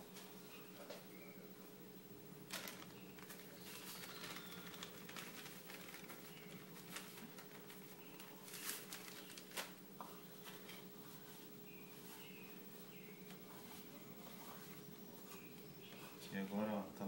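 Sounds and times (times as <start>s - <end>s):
faint hum: 0.0s - 17.0s
plastic packet crinkling: 2.5s - 9.8s
hands rustling starch in bowl: 2.6s - 16.5s.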